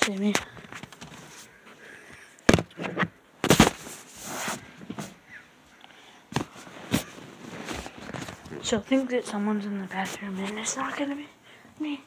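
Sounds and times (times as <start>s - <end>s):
phone rustling against cloth: 0.1s - 1.8s, 2.5s - 5.2s, 6.3s - 11.0s.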